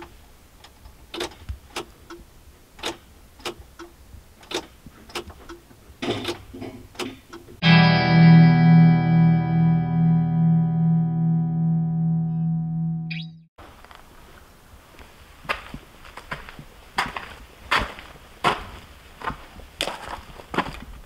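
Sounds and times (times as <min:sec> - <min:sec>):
ignition key clicks: 0:02.8 - 0:05.6
distorted electric guitar music: 0:07.6 - 0:13.5.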